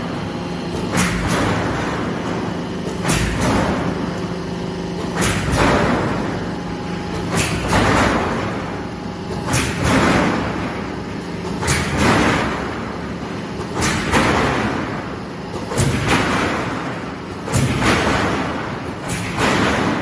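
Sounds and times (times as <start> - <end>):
roll forming machine running: 0.0 - 20.0.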